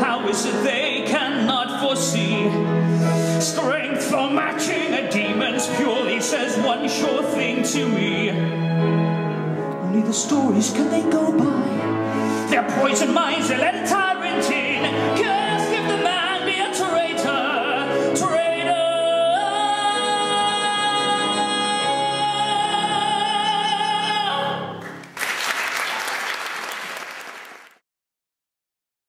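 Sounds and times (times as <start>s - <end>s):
audience applause: 24.8s - 27.8s.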